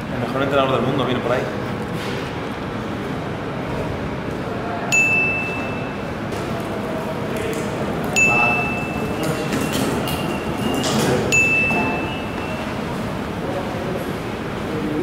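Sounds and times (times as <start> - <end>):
background hubbub: 0.0 - 15.0
high ringing tones: 4.9 - 6.3, 8.1 - 13.3.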